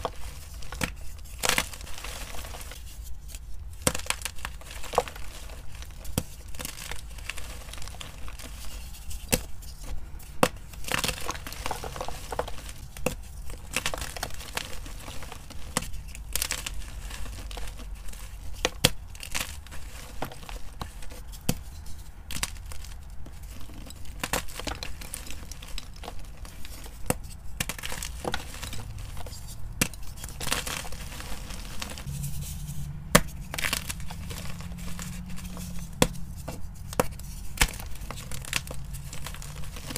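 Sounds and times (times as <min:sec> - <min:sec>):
chalk crunching and crackling: 0:00.0 - 0:39.9
chalk chunks snapping: 0:22.3 - 0:39.9.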